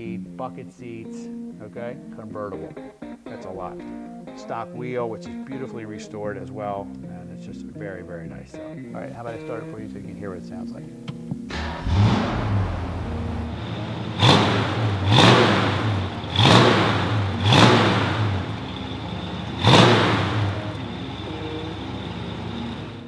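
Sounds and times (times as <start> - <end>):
car engine idling and revving: 11.5 - 23.0.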